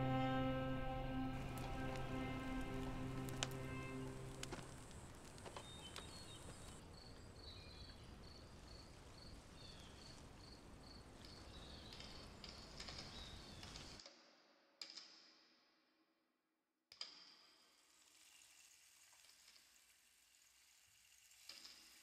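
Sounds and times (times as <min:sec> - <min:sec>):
music: 0:00.0 - 0:04.7
soft hiss: 0:00.0 - 0:06.8.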